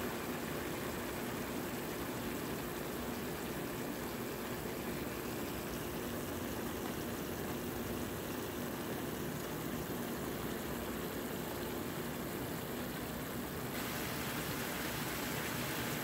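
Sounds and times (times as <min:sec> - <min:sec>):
vegetables sizzling in a frying pan: 0:13.8 - 0:16.0.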